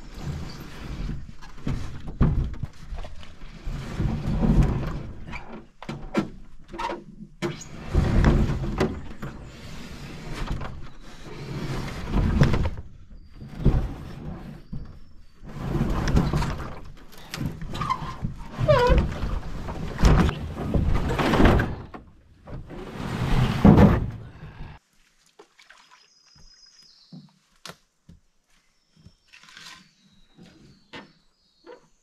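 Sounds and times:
canoe hull scraping and thudding: 0:00.0 - 0:24.8.

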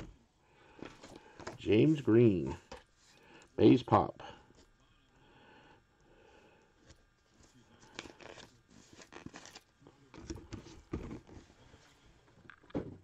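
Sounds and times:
cardboard packaging rustling: 0:07.2 - 0:12.0.

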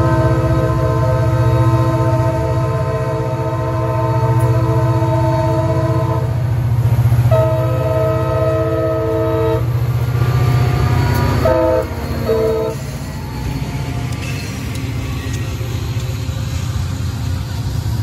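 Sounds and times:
locomotive air horn blasts: 0:00.0 - 0:06.4, 0:07.3 - 0:13.0.

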